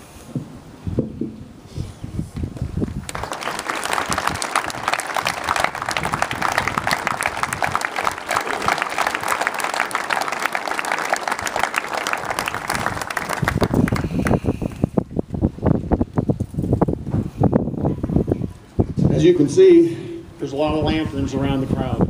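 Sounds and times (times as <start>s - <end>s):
wind rumbling on microphone: 0.0s - 10.2s, 11.0s - 22.0s
crowd applauding: 2.8s - 15.0s.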